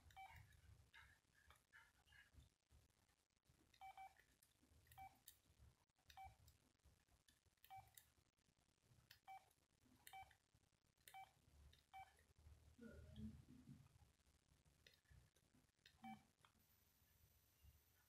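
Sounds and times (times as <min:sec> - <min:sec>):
phone keypad beeps: 0:03.8 - 0:04.2.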